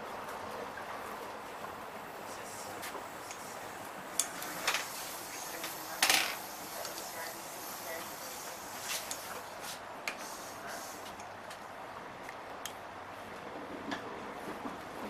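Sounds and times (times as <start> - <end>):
train carriage running noise: 0.0 - 15.0
train clatter: 4.2 - 9.2, 13.4 - 15.0.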